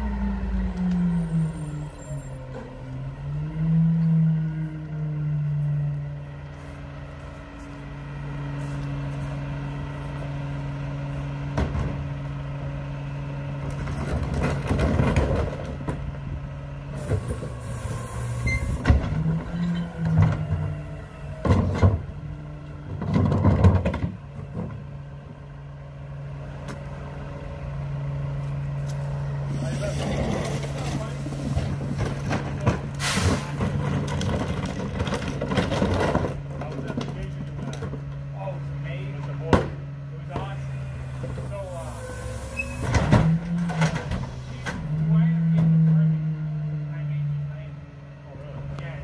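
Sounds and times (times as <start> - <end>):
diesel engine idling: 0.0 - 49.0
trash cart clattering and banging: 11.5 - 12.2, 13.6 - 16.4, 18.4 - 24.9, 29.6 - 38.3, 42.6 - 46.0.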